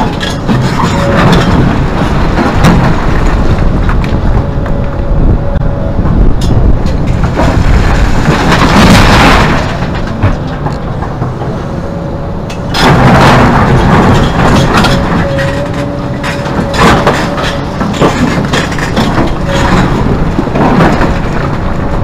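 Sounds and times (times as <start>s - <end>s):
excavator diesel engine and hydraulics: 0.0s - 22.0s
rock dumped into truck crashing: 7.3s - 10.4s.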